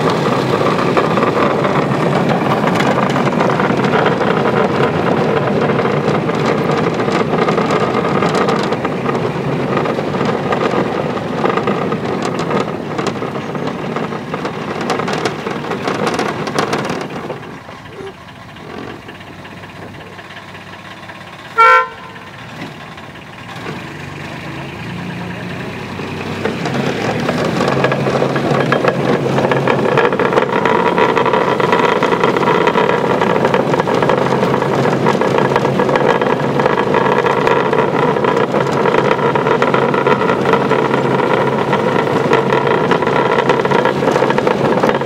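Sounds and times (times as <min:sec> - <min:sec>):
miniature train running on track: 0:00.0 - 0:45.0
train horn toot: 0:21.6 - 0:22.3.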